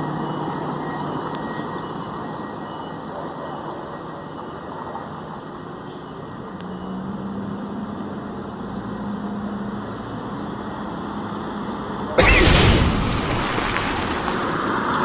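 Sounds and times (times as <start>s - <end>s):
street traffic: 0.0s - 15.0s
loud rush of noise: 12.2s - 15.0s.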